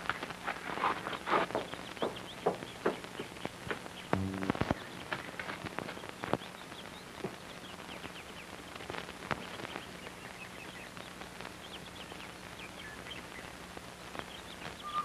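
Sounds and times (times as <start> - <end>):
film soundtrack hiss and hum: 0.0 - 15.0
faint high chirps: 14.8 - 15.0.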